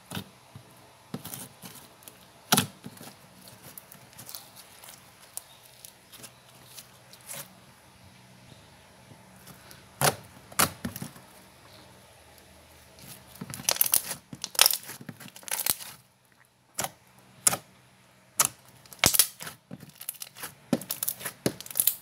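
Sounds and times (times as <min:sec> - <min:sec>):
slime clicking and popping: 0:18.4 - 0:22.0.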